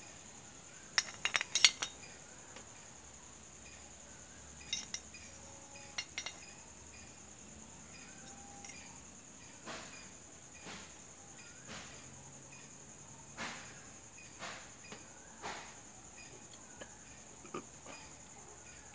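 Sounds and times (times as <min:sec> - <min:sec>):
metal clutch plates clinking: 0:01.0 - 0:02.1, 0:04.6 - 0:06.6, 0:08.2 - 0:09.0.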